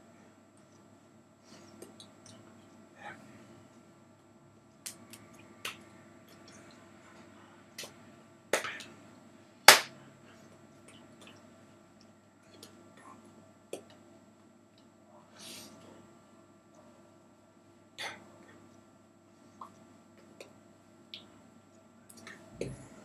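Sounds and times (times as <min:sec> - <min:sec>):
hands clapping together: 0:08.5 - 0:08.9, 0:09.7 - 0:09.9.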